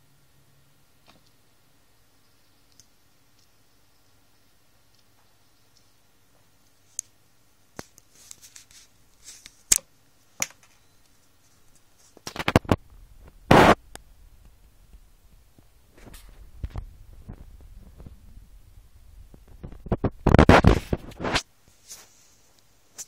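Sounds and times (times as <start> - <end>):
scraping and rustling: 10.7 - 23.0
low rumbling: 12.8 - 20.3.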